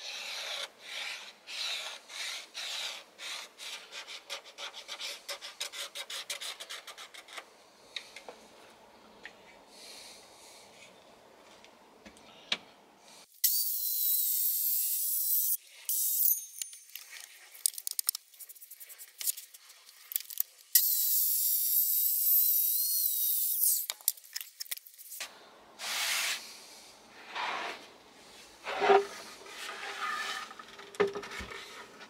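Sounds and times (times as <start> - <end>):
hand brushing sawdust off wood: 25.8 - 26.6.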